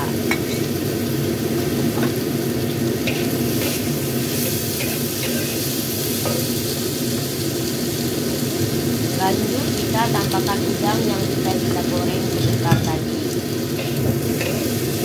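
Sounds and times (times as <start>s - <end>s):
food sizzling in hot oil: 0.0s - 15.0s
metal spatula scraping a wok: 3.0s - 6.4s, 13.8s - 15.0s.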